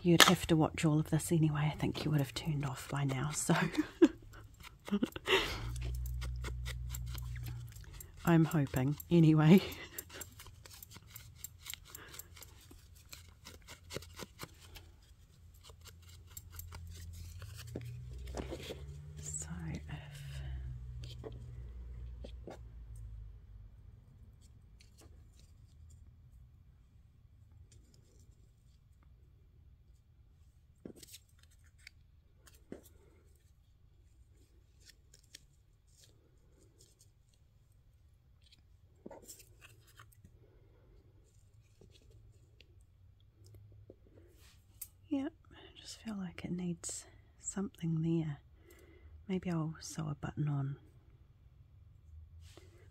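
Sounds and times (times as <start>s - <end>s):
low steady hum: 0.0s - 30.7s, 32.7s - 52.9s
paper and card rustling: 1.2s - 20.4s, 30.8s - 37.5s, 38.4s - 40.4s, 41.2s - 42.7s.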